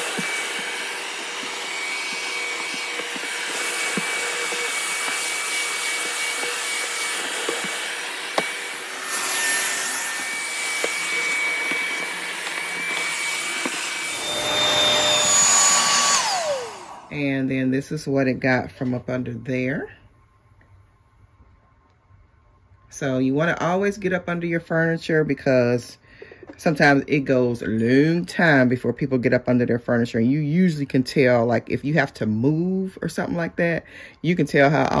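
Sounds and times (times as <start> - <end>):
vacuum motor whine: 0.0 - 17.8.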